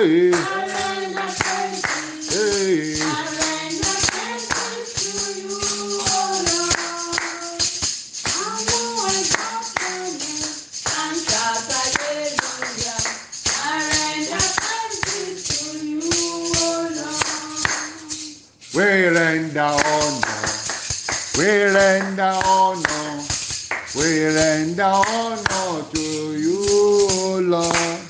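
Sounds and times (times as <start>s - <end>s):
voices singing praise chorus: 0.0s - 7.6s, 8.4s - 18.0s
tambourine shaking: 0.0s - 28.0s.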